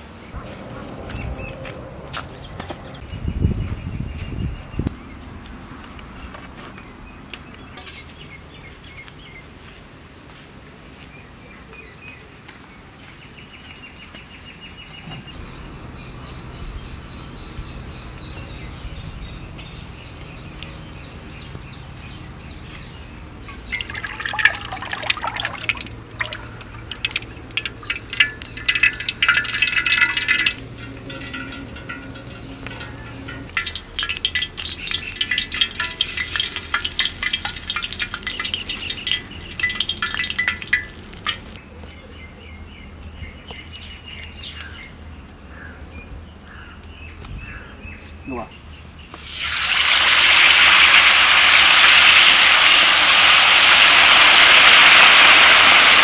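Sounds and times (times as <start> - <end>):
liquid pouring and splashing: 23.4 - 41.6, 49.2 - 56.0
dense crackling: 23.6 - 41.6.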